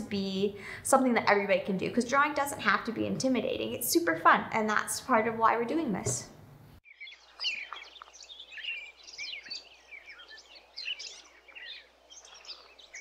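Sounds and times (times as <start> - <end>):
birds chirping and singing: 6.8 - 13.0.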